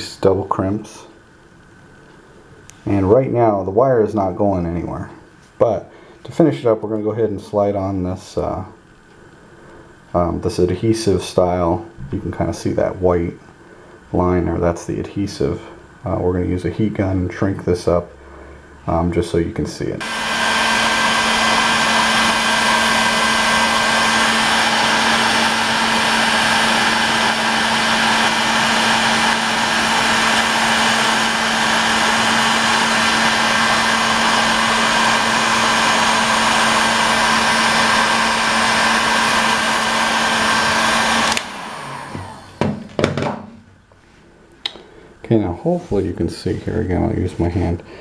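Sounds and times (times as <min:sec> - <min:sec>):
heat gun fan blowing: 0:01.7 - 0:43.4.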